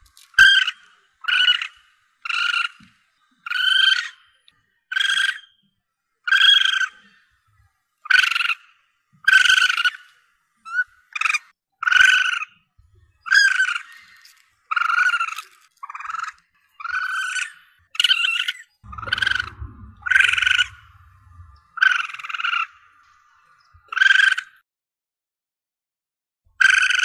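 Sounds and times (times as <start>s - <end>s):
civet calling: 0.0s - 5.6s, 6.2s - 7.4s, 8.0s - 24.6s
low rumble: 18.8s - 23.3s.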